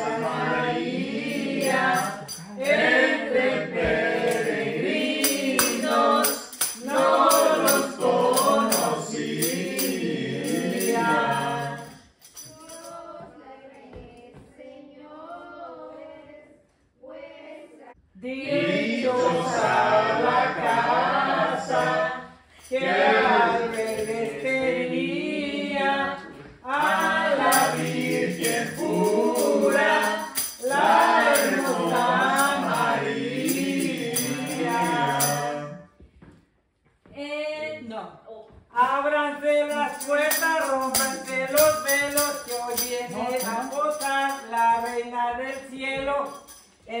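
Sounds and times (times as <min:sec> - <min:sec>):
tambourine jingling: 0:00.0 - 0:13.2, 0:18.8 - 0:24.9, 0:26.7 - 0:35.9, 0:39.0 - 0:47.0
group of people singing: 0:00.0 - 0:36.0, 0:38.7 - 0:47.0.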